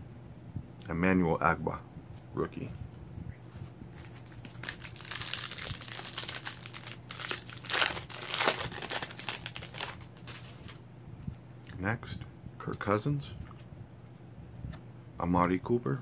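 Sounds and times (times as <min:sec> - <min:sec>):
plastic wrapper tearing and crinkling: 0:04.0 - 0:10.8.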